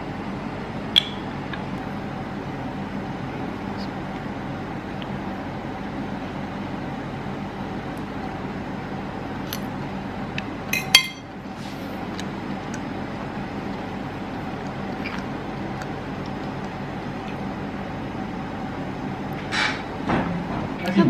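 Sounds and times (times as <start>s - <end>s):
steady background hum: 0.0s - 21.0s
metal fork clinking on plate: 10.8s - 11.3s.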